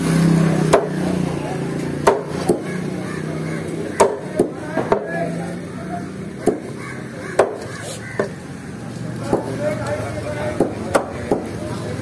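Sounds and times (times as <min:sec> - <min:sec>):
knife chopping on wooden block: 0:00.7 - 0:01.0, 0:02.0 - 0:02.7, 0:04.0 - 0:05.1, 0:06.4 - 0:08.4.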